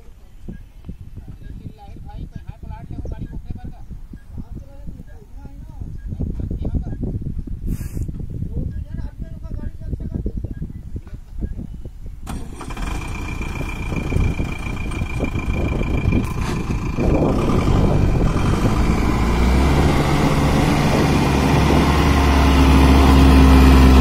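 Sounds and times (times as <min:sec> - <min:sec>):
diesel truck engine starting: 0:12.2 - 0:24.0.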